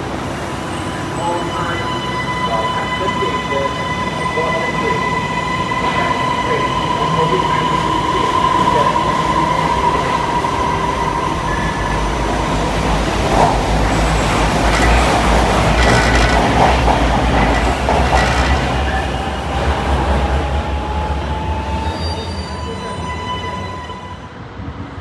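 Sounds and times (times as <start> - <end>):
deep rumble of train wheels: 3.2 - 22.4
wheels clicking over rail joints: 13.2 - 19.0.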